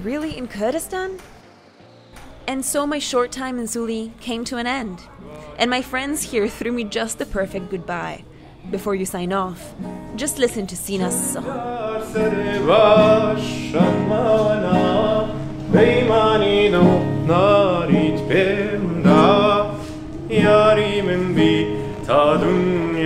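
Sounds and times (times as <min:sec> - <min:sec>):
guitar strumming: 0:09.8 - 0:23.0
man singing with vibrato: 0:11.0 - 0:23.0.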